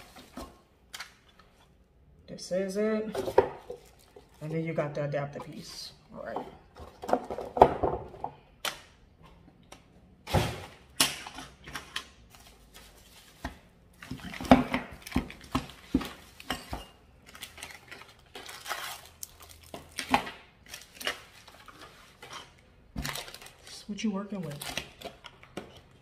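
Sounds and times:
bubble wrap rustling: 3.6 - 4.6, 12.3 - 16.5, 17.1 - 26.0.

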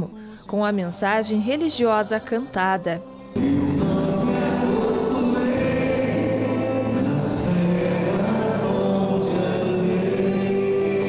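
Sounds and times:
voice on a microphone: 0.0 - 4.6
voices singing a hymn: 1.3 - 11.0.

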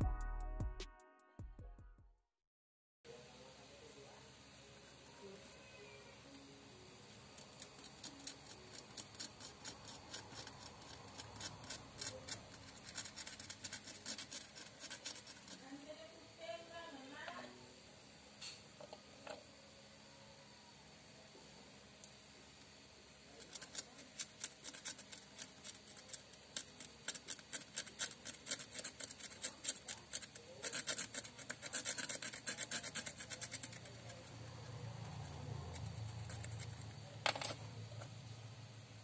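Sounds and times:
razor blade scraping glass: 7.3 - 15.8, 23.4 - 37.0.

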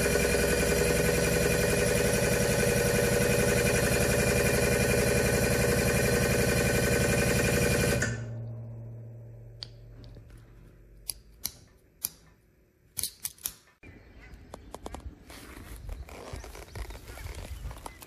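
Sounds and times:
hydraulic pump motor humming: 0.0 - 10.3
metal lever clicks: 11.0 - 13.8.

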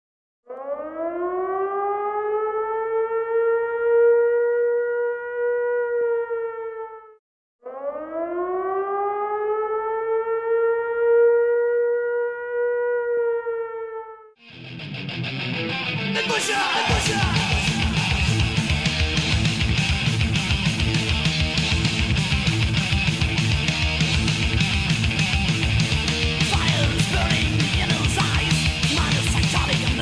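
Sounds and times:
siren wailing: 0.5 - 14.4, 16.2 - 22.0, 25.6 - 30.0
loud electric guitar music: 14.4 - 30.0.

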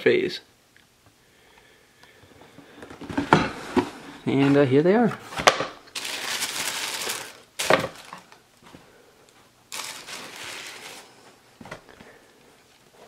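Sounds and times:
tissue paper rustling: 6.0 - 8.4, 9.7 - 11.2.

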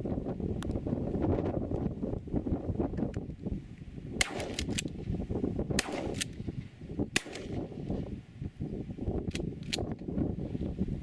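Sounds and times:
wind buffeting microphone: 0.0 - 11.0
sharp clicks: 4.2 - 5.0.

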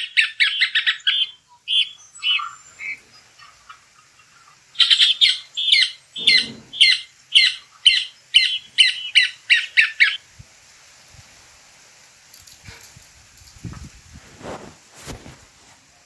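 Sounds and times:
bird singing harsh scratchy notes: 0.0 - 10.2.

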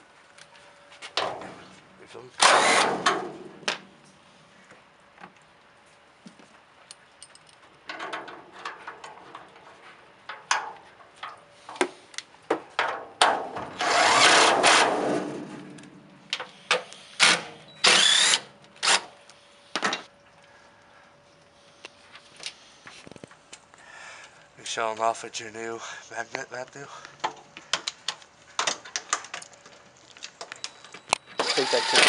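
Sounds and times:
power driver running bolt: 2.4 - 3.2, 13.8 - 14.9, 16.7 - 19.1, 31.4 - 32.0.

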